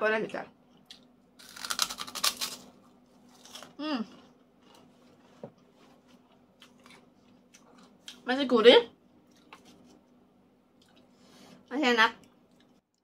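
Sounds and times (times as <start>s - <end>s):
cracker crunching being chewed: 0.8s - 8.2s.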